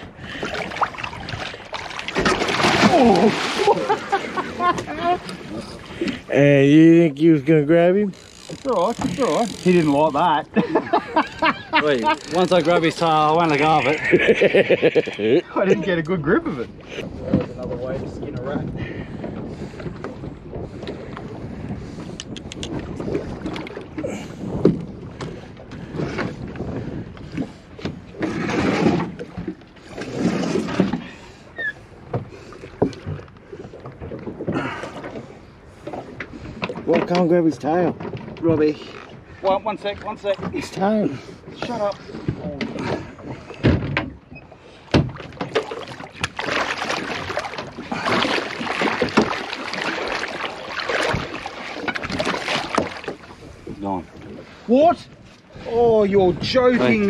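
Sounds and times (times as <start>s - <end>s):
water splashing against boat: 0.0s - 57.0s
fish thrashing in water: 0.3s - 6.3s, 45.1s - 53.5s
sharp thumps on boat hull: 44.9s - 46.5s.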